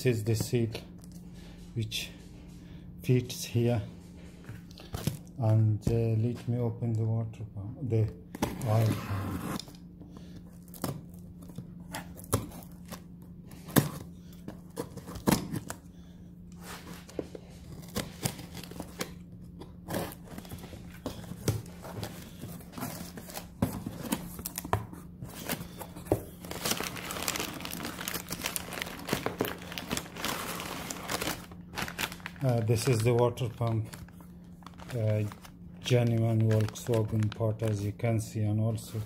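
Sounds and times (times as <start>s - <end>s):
crumpled paper rustling: 25.3s - 37.9s.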